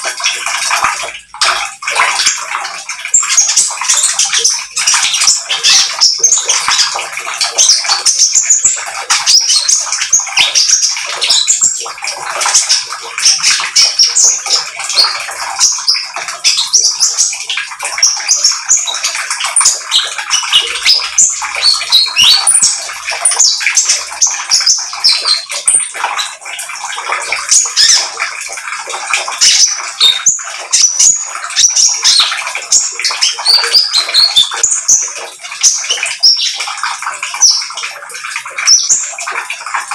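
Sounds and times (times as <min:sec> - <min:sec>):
bird singing high chirps and trills: 0:00.0 - 0:39.9.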